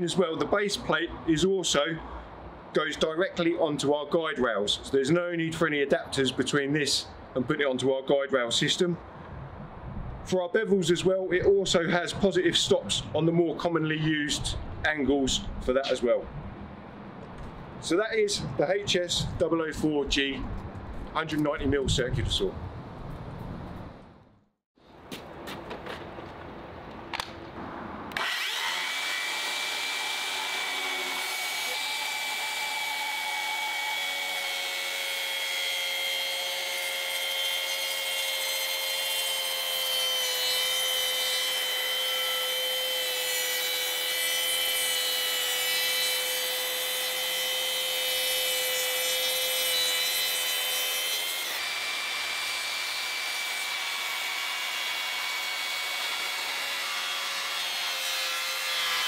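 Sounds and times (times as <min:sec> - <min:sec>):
circular saw cutting timber: 0:28.1 - 0:59.0.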